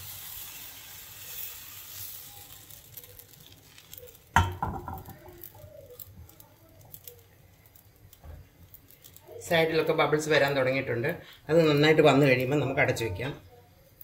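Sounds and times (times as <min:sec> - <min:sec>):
batter hissing in a hot pan: 0:00.0 - 0:14.0
metal pan clanking on stove grate: 0:04.4 - 0:05.2.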